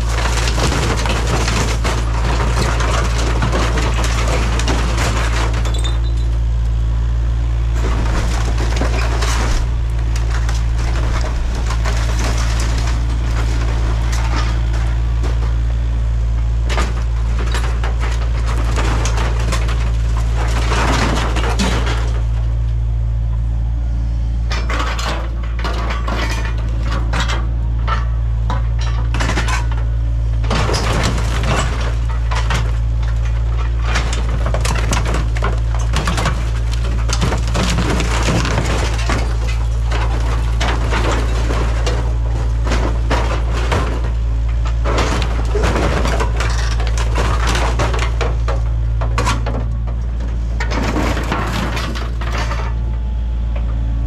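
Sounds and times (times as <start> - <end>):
crunching and breaking sheet metal: 0.0 - 6.2, 7.7 - 22.7, 24.5 - 52.9
diesel excavator engine running: 0.0 - 54.0.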